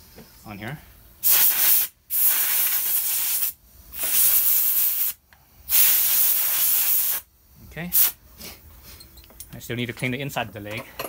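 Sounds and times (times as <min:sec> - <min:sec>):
compressed air blow gun hissing: 0:01.2 - 0:07.3, 0:07.9 - 0:08.6.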